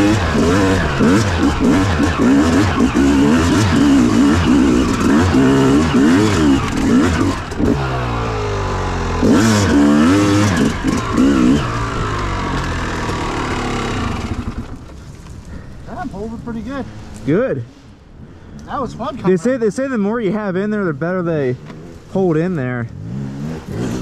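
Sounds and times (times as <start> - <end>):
dirt bike engine revving: 0.0 - 14.8, 20.3 - 24.0.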